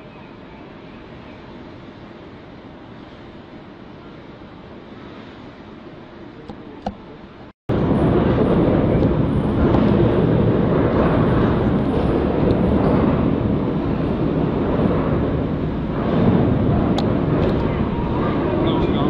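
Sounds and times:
wind on microphone: 0.0s - 19.0s
turbulent water rushing: 7.4s - 19.0s.

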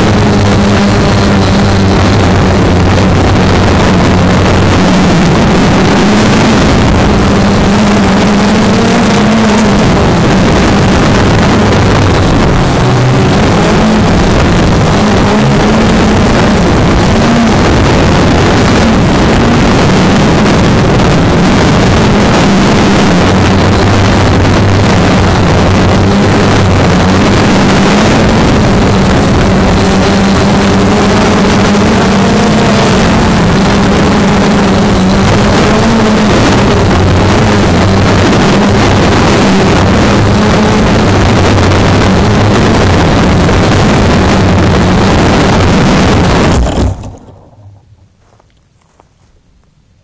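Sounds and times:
small engine running: 0.0s - 47.8s.

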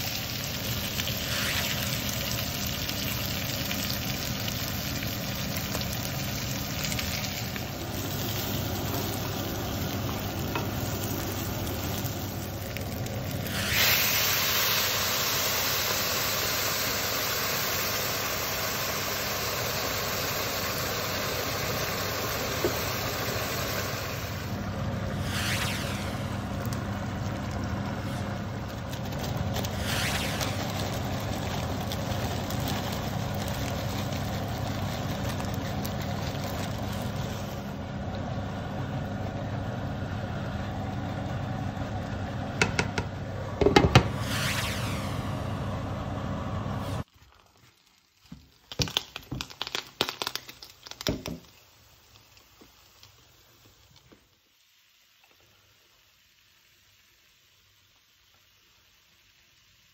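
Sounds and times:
food hissing in a pan: 0.0s - 37.8s
utensil knocking against pan: 42.6s - 44.1s.

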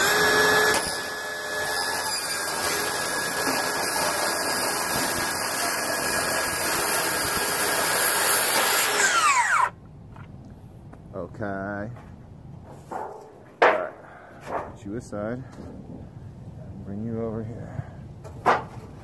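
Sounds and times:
circular saw cutting metal sheet: 0.0s - 9.7s.

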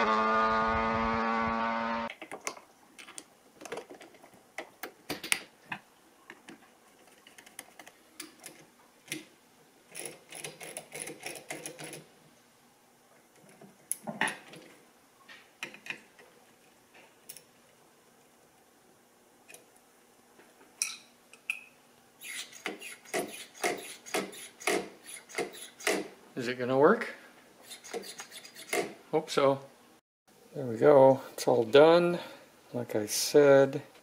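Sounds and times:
engine droning: 0.0s - 2.1s.

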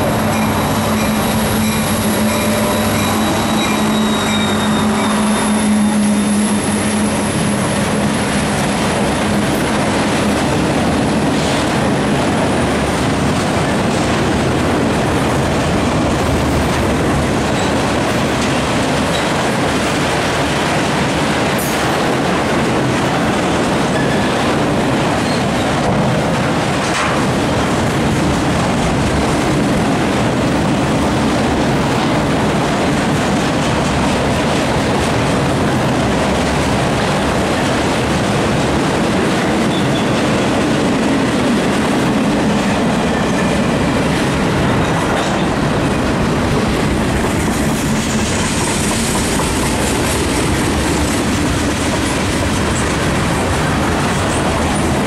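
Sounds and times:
locomotive engine drone and whine: 0.0s - 20.4s
train cars rumbling over rails: 0.0s - 55.0s.

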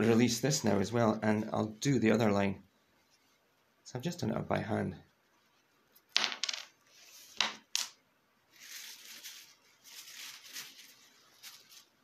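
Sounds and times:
hands rubbing and rustling: 8.5s - 12.0s.

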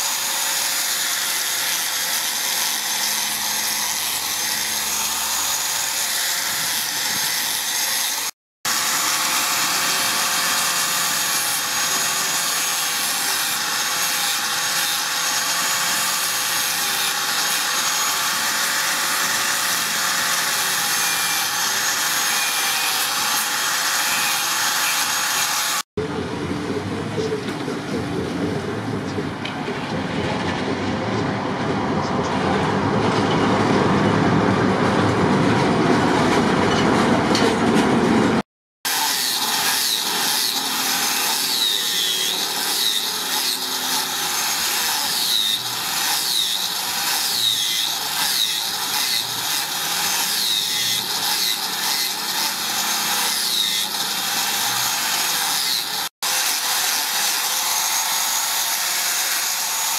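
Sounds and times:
angle grinder sanding wood: 0.0s - 25.9s, 38.8s - 59.9s
traffic rumble: 26.0s - 38.4s.

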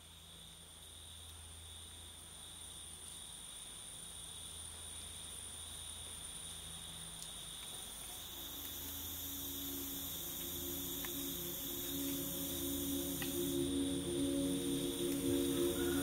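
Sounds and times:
night insects trilling: 0.1s - 16.0s
ambient music with held notes: 8.2s - 16.0s.

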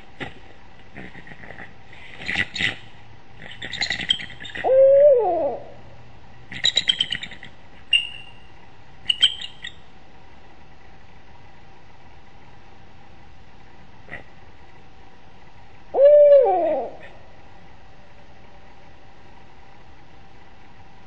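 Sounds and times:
eagles chattering alarm calls: 3.4s - 4.7s, 6.5s - 8.3s
rising and falling eagle cry: 16.0s - 17.1s.

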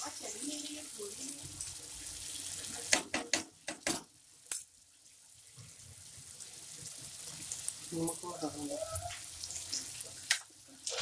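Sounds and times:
gravy sizzling and bubbling: 0.0s - 11.0s
spoon knocking against pan: 2.9s - 4.1s.

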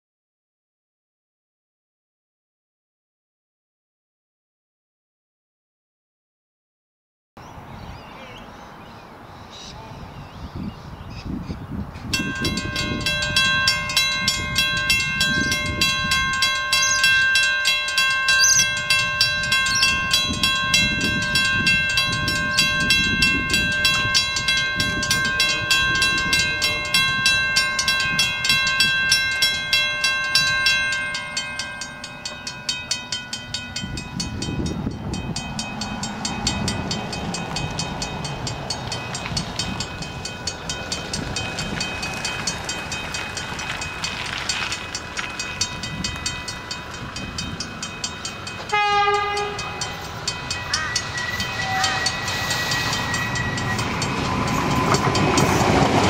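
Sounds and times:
crossing warning bell ringing: 12.1s - 56.0s.

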